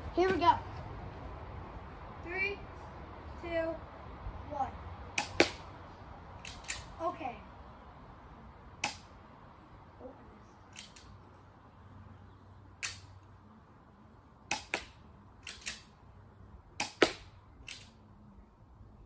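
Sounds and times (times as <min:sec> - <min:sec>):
airsoft pistol shots: 0:05.2 - 0:05.6, 0:14.5 - 0:15.8.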